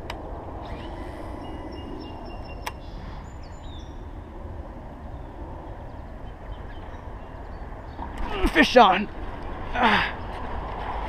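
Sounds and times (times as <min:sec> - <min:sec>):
low outdoor rumble: 0:00.0 - 0:11.0
high bird chirps: 0:00.6 - 0:04.1.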